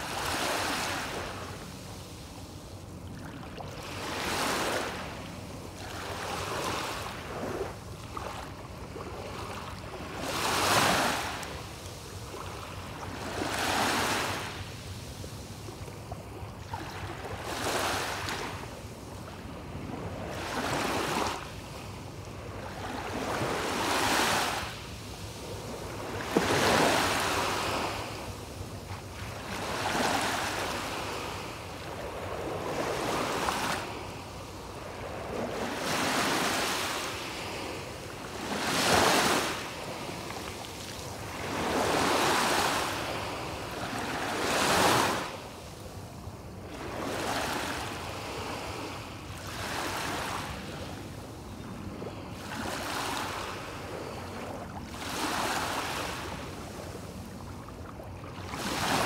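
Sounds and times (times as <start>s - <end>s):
small waves washing up beach: 0.0s - 59.0s.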